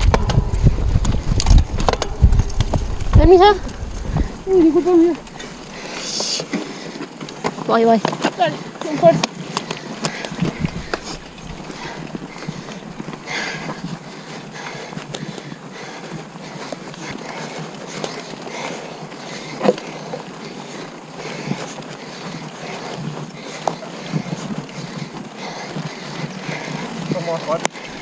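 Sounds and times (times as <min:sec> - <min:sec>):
mountain bike tyre noise: 0:00.0 - 0:28.0.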